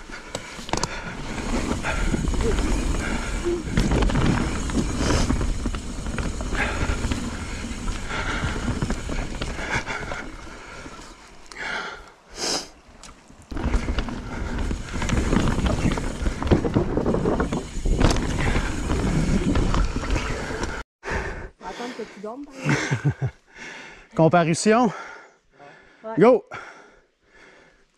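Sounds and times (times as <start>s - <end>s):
bike rattling: 0.0s - 12.0s, 12.8s - 20.8s
bike tyre noise on dirt: 0.0s - 20.8s.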